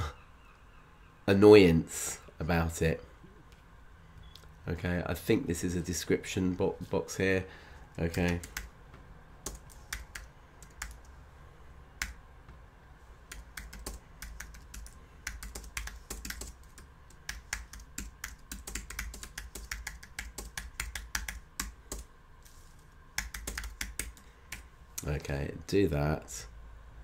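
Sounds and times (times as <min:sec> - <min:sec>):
computer keyboard typing: 0:08.1 - 0:08.7, 0:09.4 - 0:11.1, 0:13.3 - 0:22.1, 0:23.2 - 0:24.7.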